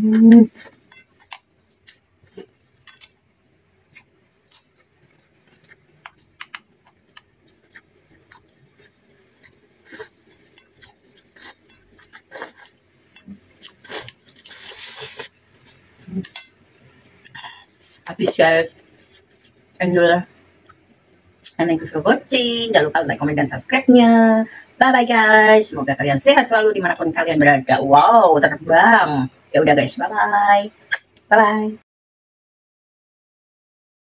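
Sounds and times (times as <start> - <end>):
noodles slurped and chewed: 4.5 - 12.8, 13.6 - 15.8.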